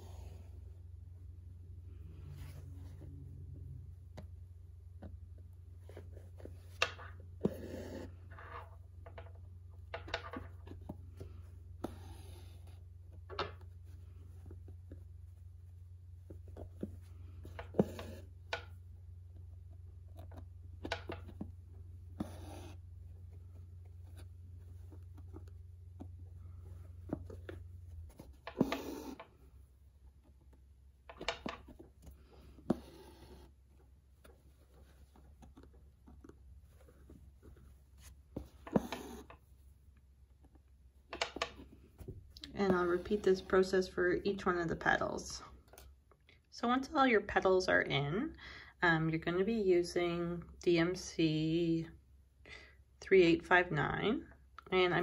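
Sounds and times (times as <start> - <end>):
low steady hum: 0.0 - 55.0
needle pulling thread through fabric: 2.1 - 9.2, 9.9 - 44.2.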